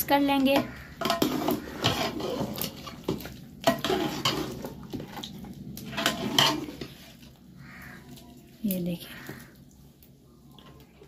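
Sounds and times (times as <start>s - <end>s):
ladle stirring thick curry: 0.3s - 8.6s
ladle knocking and scraping pot: 0.4s - 7.3s.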